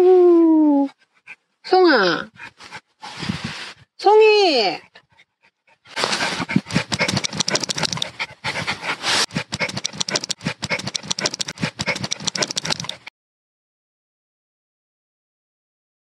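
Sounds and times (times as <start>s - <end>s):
puppy panting: 0.9s - 3.4s, 4.5s - 13.1s.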